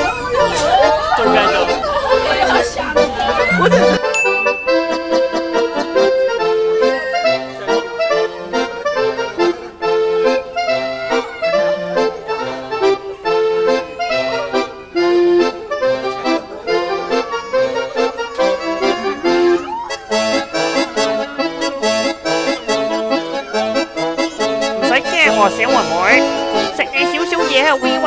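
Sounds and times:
lively instrumental music: 0.0 - 28.0.

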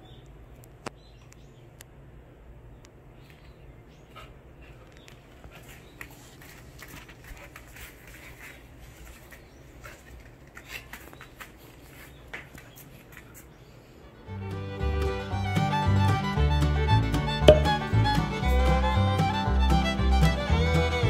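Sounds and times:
faint room hum: 0.0 - 14.5.

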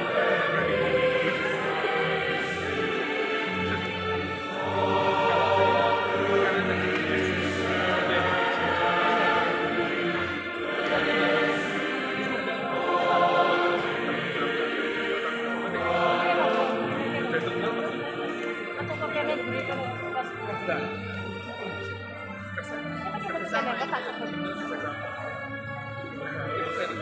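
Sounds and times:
church choir singing in harmony: 0.0 - 27.0.

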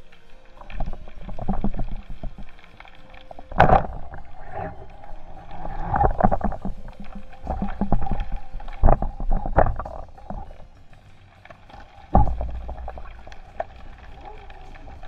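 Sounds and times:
rushing water: 0.0 - 15.0
muffled underwater knocks: 0.7 - 2.5, 3.5 - 4.6, 5.7 - 10.6, 12.1 - 14.4.

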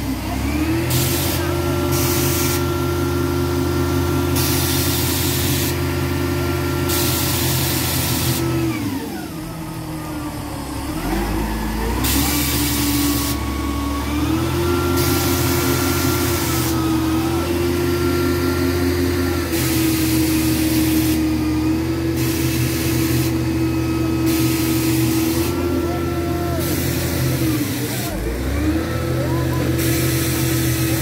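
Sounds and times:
crane engine revving: 0.0 - 31.0
hydraulic hiss: 0.9 - 2.8, 4.2 - 5.9, 6.8 - 8.5, 11.9 - 13.9, 14.8 - 21.4, 22.0 - 28.2, 29.6 - 31.0.

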